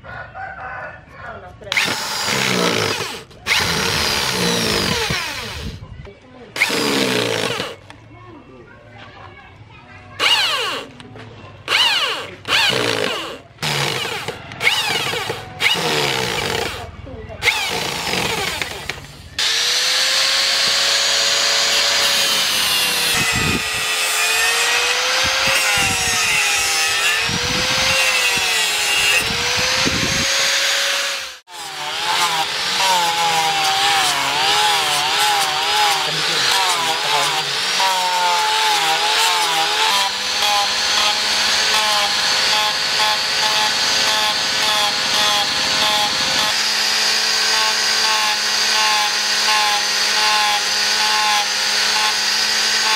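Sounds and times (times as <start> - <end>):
angle grinder sanding wood: 1.8 - 5.8, 17.5 - 52.9.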